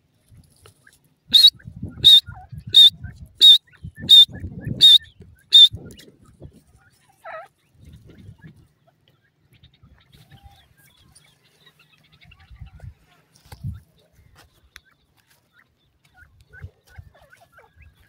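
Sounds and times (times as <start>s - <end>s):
bird calling high-pitched notes: 1.3s - 5.8s.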